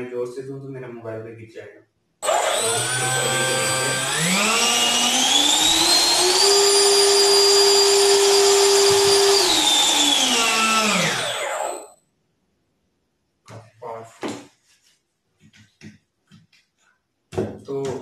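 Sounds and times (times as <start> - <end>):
electric ducted fan whine: 2.2 - 11.9.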